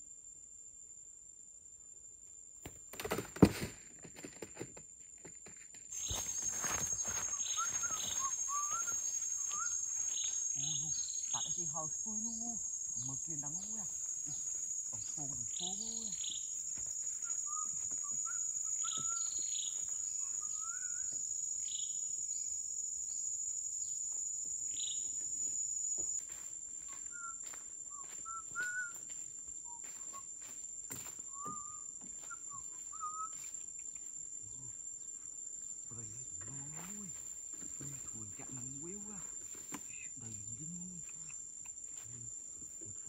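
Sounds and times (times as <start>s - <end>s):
insects droning: 0.0s - 43.0s
birds chirping: 6.0s - 22.0s.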